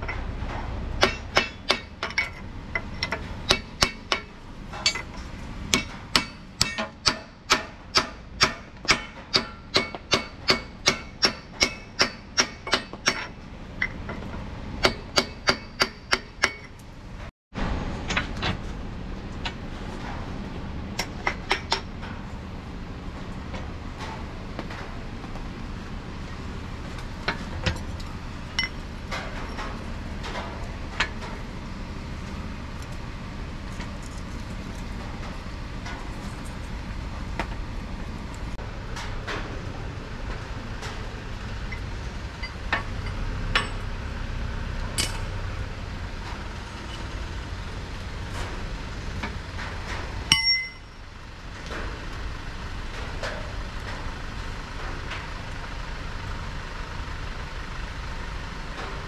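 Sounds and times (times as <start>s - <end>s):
steady low rumble: 0.0s - 59.0s
metal tools clinking: 4.8s - 5.2s, 50.3s - 51.0s
loud metallic clang: 50.3s - 51.0s.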